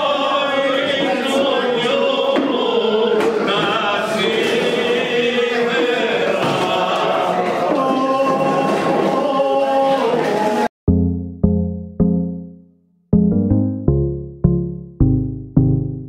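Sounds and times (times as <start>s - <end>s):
men singing or chanting: 0.0s - 9.2s.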